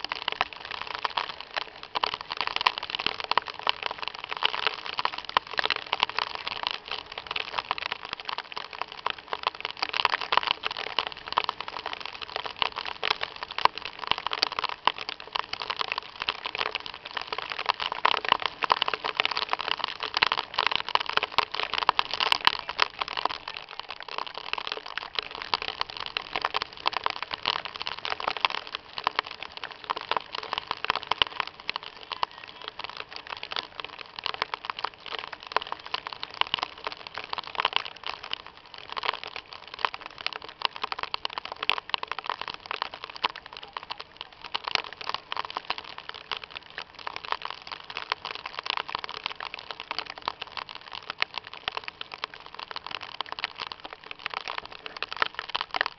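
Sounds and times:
heavy rain and hail: 0.0s - 55.9s.

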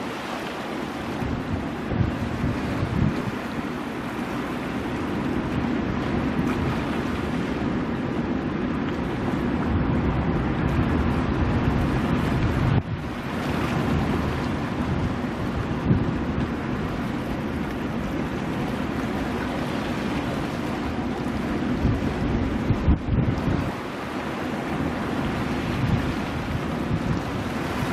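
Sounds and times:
waves breaking over rocks: 0.0s - 27.9s
wind rumbling on microphone: 0.0s - 27.9s.

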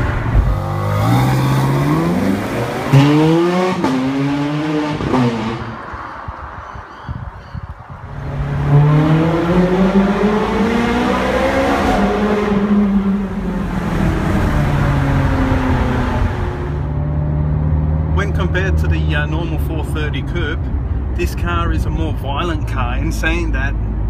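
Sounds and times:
sports car engine accelerating: 0.0s - 6.1s, 8.0s - 18.7s.

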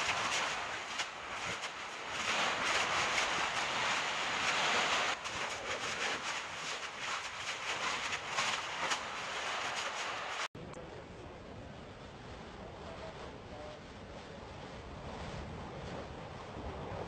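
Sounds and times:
lava crackling: 0.0s - 10.5s
lava hissing: 0.0s - 10.5s.

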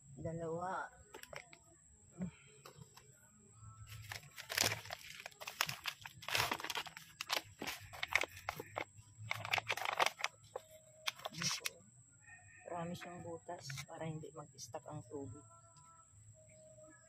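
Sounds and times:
crunching crinkling rustles: 3.9s - 11.7s.

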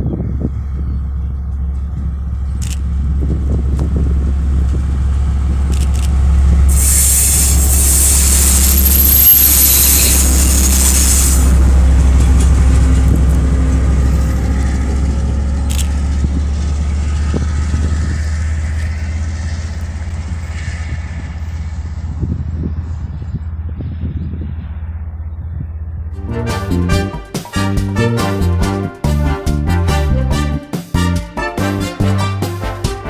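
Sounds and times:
diesel locomotive rumbling: 0.0s - 33.0s
loud air hiss: 6.7s - 11.6s.

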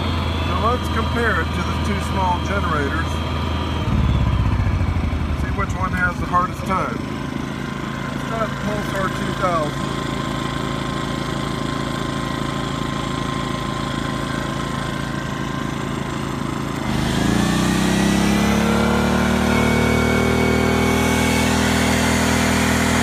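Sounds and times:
generator engine running: 0.0s - 23.0s.

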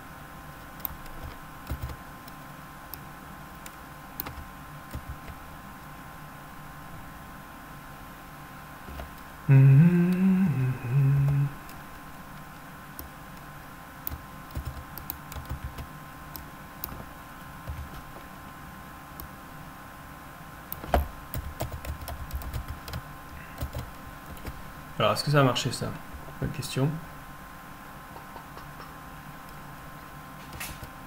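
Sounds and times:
computer keyboard typing: 0.7s - 2.5s, 3.6s - 5.4s, 14.1s - 18.1s, 20.8s - 24.6s
person humming: 9.4s - 11.8s.

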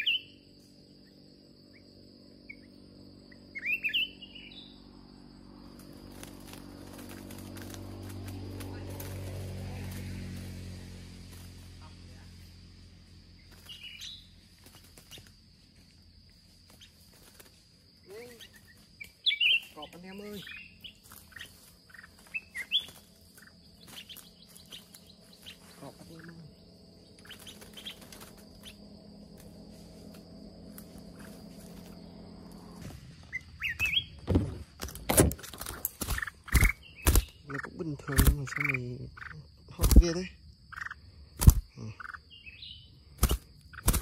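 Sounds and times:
short rising bird chirps: 0.0s - 0.4s, 2.4s - 4.9s, 13.4s - 15.3s, 18.4s - 25.7s, 31.0s - 34.2s
bird chirping: 0.0s - 7.2s, 13.1s - 15.5s, 16.7s - 30.1s, 30.8s - 34.6s, 35.4s - 44.0s
faint low hum: 0.0s - 44.0s
footsteps through undergrowth: 5.7s - 11.8s, 13.1s - 37.5s.

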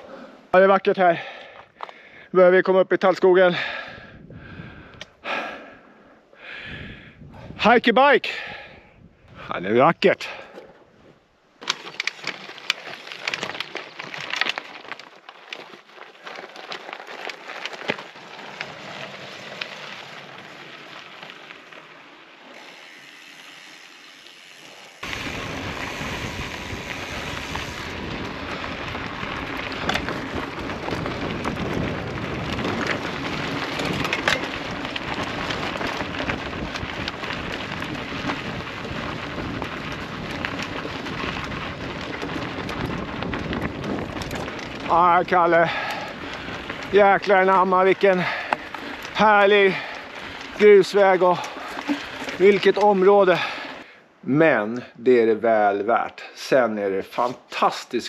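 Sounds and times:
wind on microphone: 4.0s - 5.0s, 6.6s - 7.6s, 25.0s - 44.9s
bike tyres crunching gravel: 9.7s - 58.0s
footsteps on stony path: 10.4s - 21.6s, 27.2s - 53.8s.

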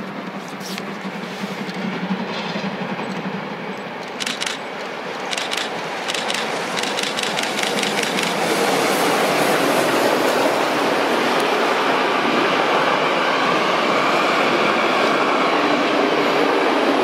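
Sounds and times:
steam locomotive exhaust beats: 0.0s - 10.6s
coaches rumbling and rail clatter: 0.0s - 17.0s.

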